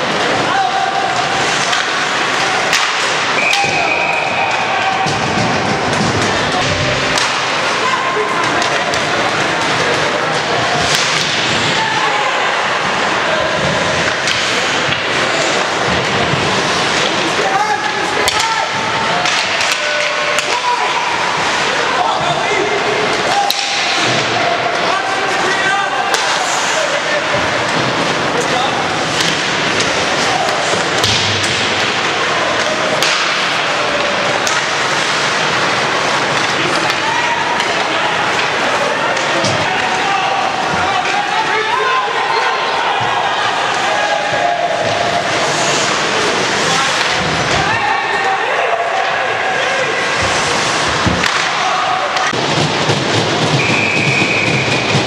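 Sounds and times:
crowd noise: 0.0 - 55.0
hockey sticks and puck clacking: 0.0 - 55.0
people shouting: 0.2 - 16.0, 17.2 - 27.2, 32.2 - 52.4
skates hissing on ice: 26.4 - 27.0, 45.1 - 47.0, 50.0 - 51.1.

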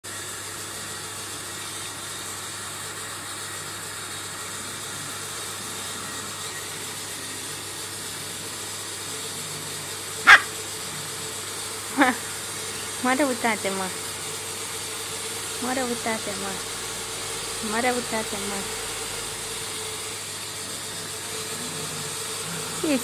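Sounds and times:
puppy yipping: 10.3 - 10.5.

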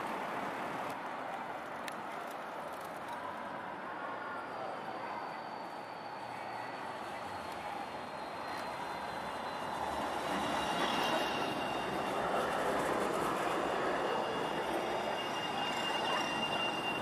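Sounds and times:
tram wheels rolling: 0.0 - 17.0
high wheel squeal: 4.2 - 17.0.

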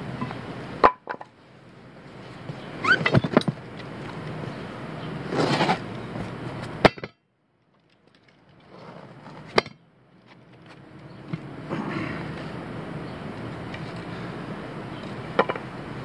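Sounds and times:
tire scuffing and clinking on asphalt: 2.1 - 11.5.

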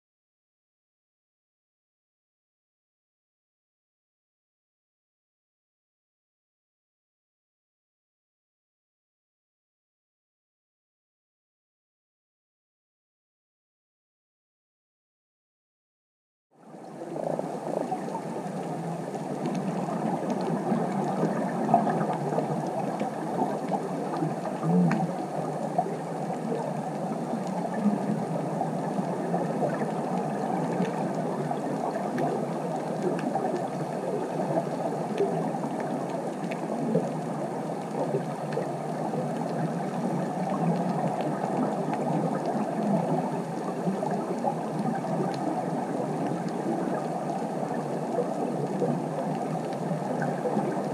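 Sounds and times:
muffled underwater rush: 16.6 - 50.9
faint underwater clicks: 17.0 - 50.9.

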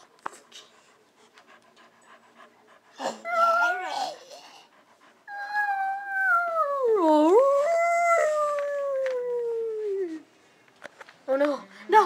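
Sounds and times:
dog howling: 5.3 - 10.0.

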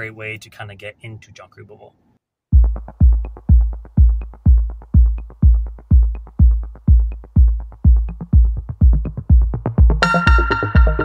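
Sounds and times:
deep kick drum: 2.5 - 11.0
electronic music: 2.6 - 11.0
fast ticking percussion: 2.6 - 11.0.

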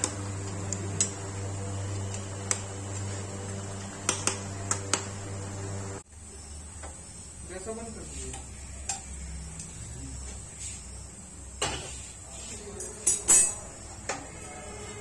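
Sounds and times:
low hum: 0.0 - 6.6.

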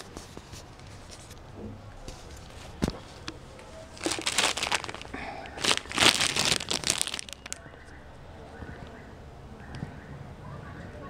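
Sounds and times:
plastic bag crinkling: 3.9 - 7.6.

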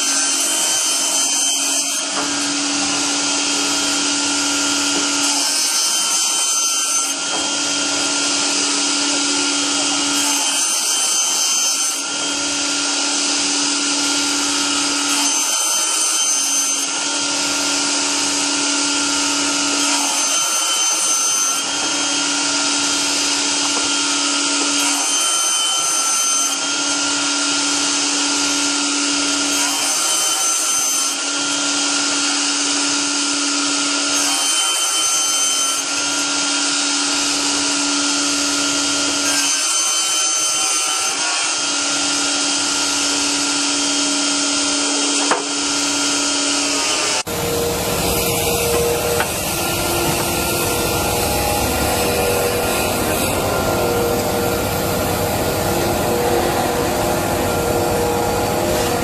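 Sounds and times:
low machine hum: 47.3 - 59.0.

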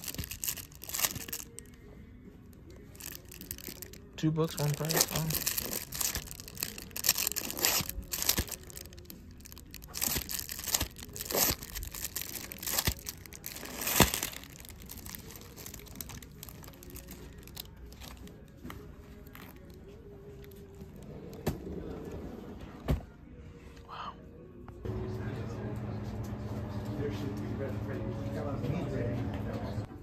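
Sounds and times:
plastic sleeves crinkling: 0.0 - 1.8, 2.7 - 21.0.

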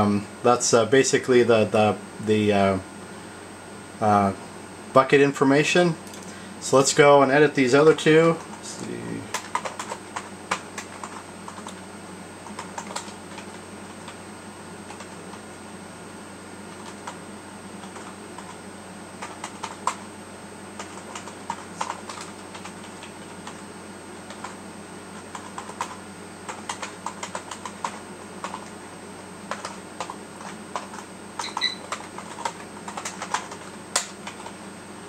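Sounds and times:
computer keyboard typing: 9.3 - 11.8, 12.4 - 14.2, 14.9 - 15.4, 16.7 - 17.2, 17.8 - 18.6, 19.2 - 20.1, 20.8 - 23.6, 24.2 - 24.6, 25.2 - 28.8, 29.5 - 34.6.

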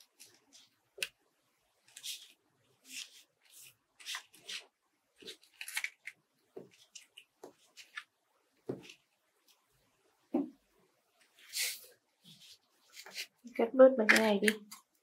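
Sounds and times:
paper rustling: 1.8 - 8.1.

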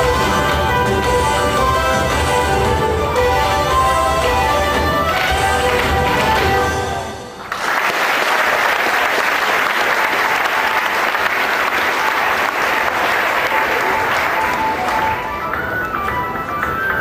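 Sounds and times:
dance music: 0.0 - 7.4
audience applauding: 4.2 - 17.0.

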